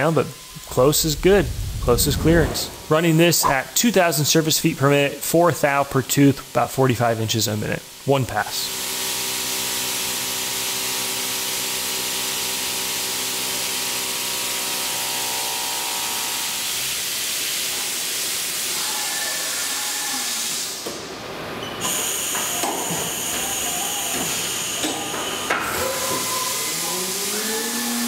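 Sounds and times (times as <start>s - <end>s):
mill cutting whine: 0.0s - 3.2s
coolant spray hiss: 0.4s - 3.4s
high-pitched machine whine: 13.4s - 16.9s, 21.8s - 28.0s.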